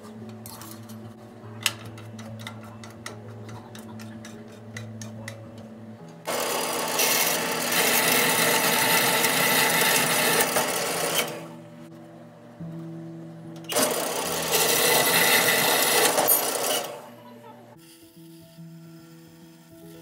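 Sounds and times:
bandsaw cutting metal rod: 6.3 - 11.6, 13.7 - 17.1.

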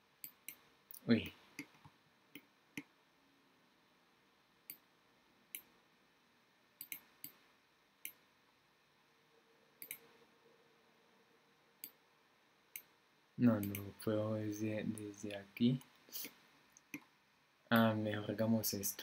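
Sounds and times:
computer mouse clicks: 6.8 - 7.4, 9.8 - 10.1, 13.6 - 13.9.

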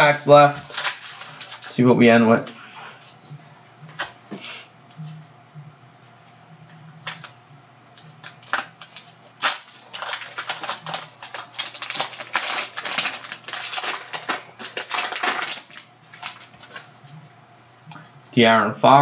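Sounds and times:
plastic wrapper crinkling and tearing: 0.0 - 1.8, 7.0 - 7.4, 8.2 - 16.9.

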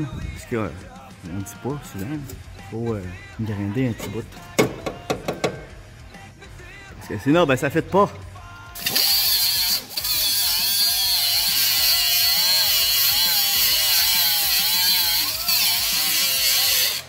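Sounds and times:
angle grinder whining on metal: 8.8 - 17.0.

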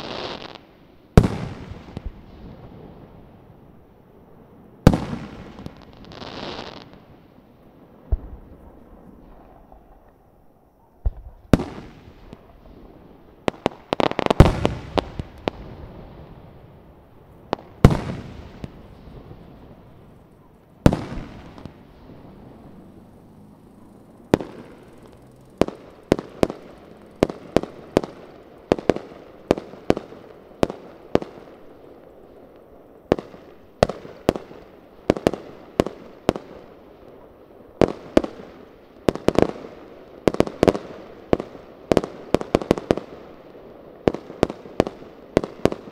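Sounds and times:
fireworks booming: 0.0 - 10.2, 11.0 - 36.7.

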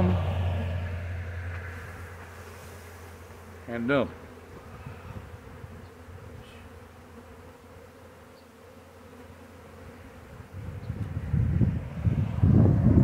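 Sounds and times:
low rumble: 0.0 - 2.2
bee swarm buzzing: 0.0 - 13.0.

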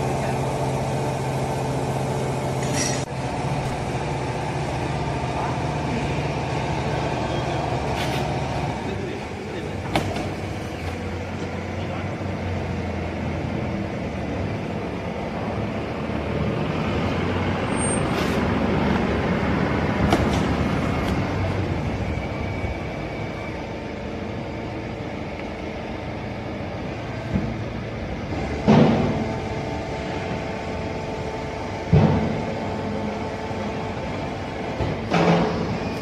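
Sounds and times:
baling press machine drone: 18.6 - 36.0.

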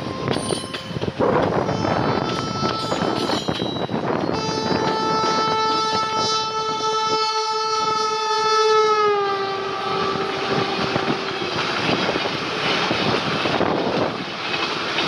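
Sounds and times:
train wheels rumbling on rails: 0.0 - 15.0
locomotive horn blast: 1.5 - 12.2.

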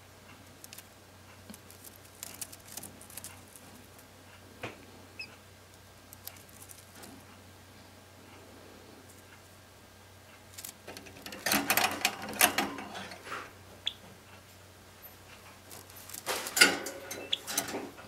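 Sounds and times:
bird clicking and rattling in cage: 10.6 - 12.8.

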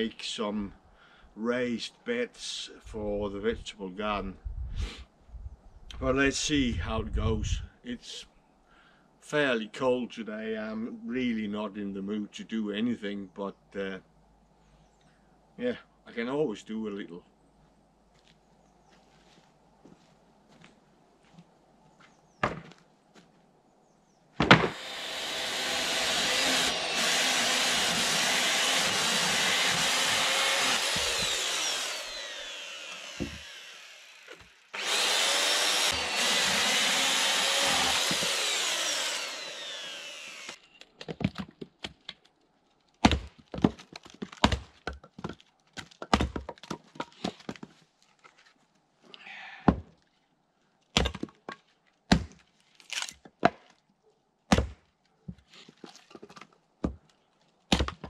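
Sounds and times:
sharp wooden knocks: 24.4 - 25.0, 43.0 - 47.7
hatchet splitting kindling: 24.4 - 40.6
electric chainsaw cutting wood: 24.5 - 40.6.

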